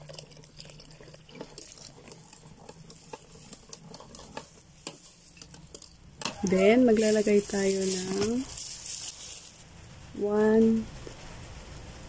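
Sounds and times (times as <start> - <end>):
water being poured: 0.0 - 9.6
whisk scraping plastic bowl: 1.3 - 9.6.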